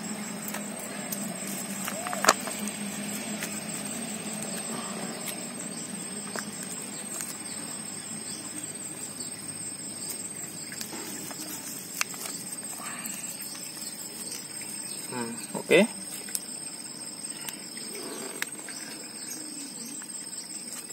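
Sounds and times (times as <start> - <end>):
soil rustling: 0.0 - 15.2
high insect trill: 0.0 - 20.9.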